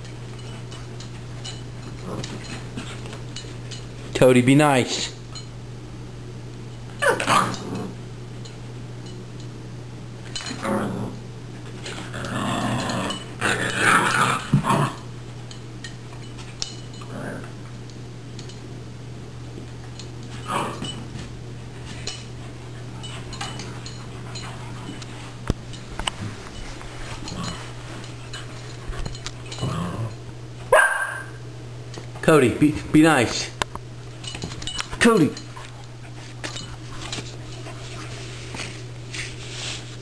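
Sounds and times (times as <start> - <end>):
dogs growling: 1.8 - 3.1, 7.0 - 8.0, 10.4 - 11.2, 11.8 - 15.1, 17.0 - 17.6, 20.4 - 21.0, 27.1 - 28.8, 29.4 - 30.3.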